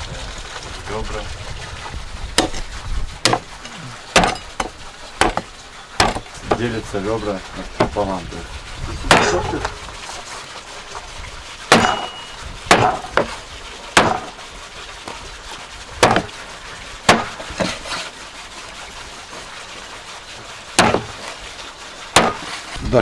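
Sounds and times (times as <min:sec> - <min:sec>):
cleaver chopping on wooden board: 0:02.4 - 0:02.6, 0:03.2 - 0:03.5, 0:04.2 - 0:06.6, 0:09.1 - 0:09.4, 0:11.7 - 0:13.4, 0:14.0 - 0:14.3, 0:16.0 - 0:16.3, 0:17.1 - 0:17.8, 0:20.8 - 0:21.2, 0:22.2 - 0:22.5.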